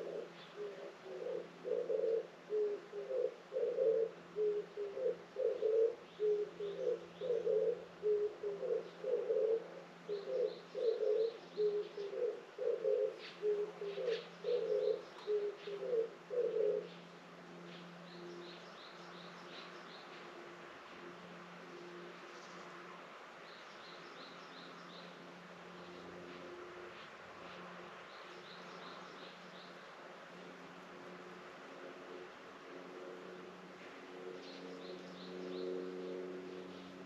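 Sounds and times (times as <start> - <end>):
dove cooing: 0.0 - 17.1.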